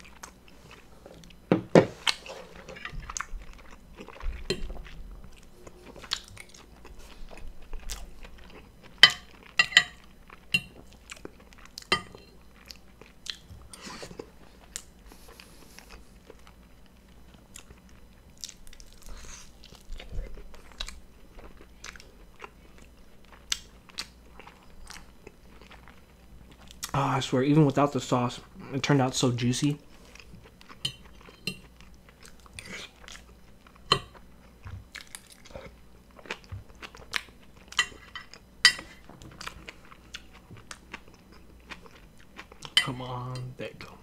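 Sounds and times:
biting and chewing food: 30.0 - 42.8.

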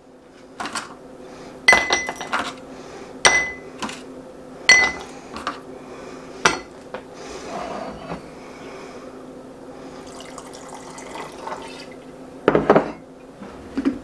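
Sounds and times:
drinking glass clinking: 1.7 - 2.4, 4.7 - 5.0, 10.1 - 11.9.

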